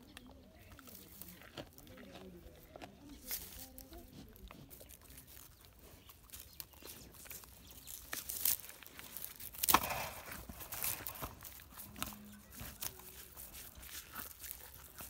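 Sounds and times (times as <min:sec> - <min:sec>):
calf tearing and chewing grass: 0:00.0 - 0:15.0
leaves crackling and rustling: 0:03.2 - 0:15.0.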